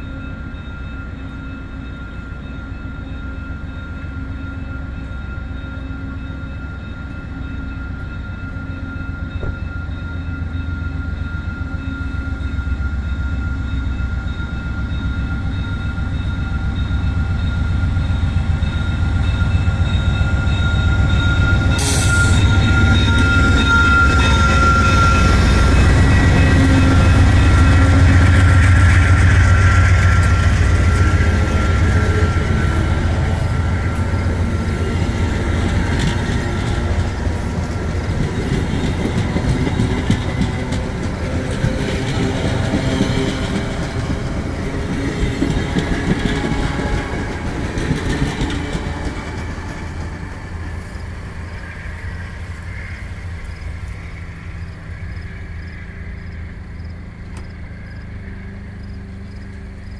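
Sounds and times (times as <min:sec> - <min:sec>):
locomotive engine drone: 0:00.0 - 0:59.9
train wheels clattering on rail joints: 0:08.0 - 0:09.9, 0:18.5 - 0:51.2.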